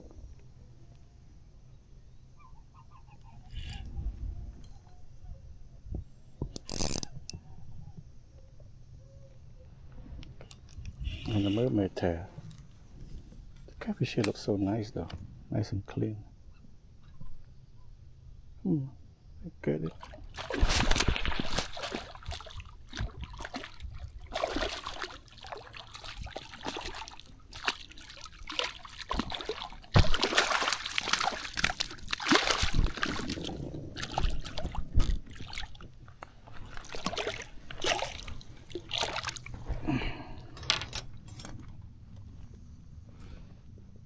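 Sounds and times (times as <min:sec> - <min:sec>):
water splashing and sloshing: 0:19.8 - 0:41.0.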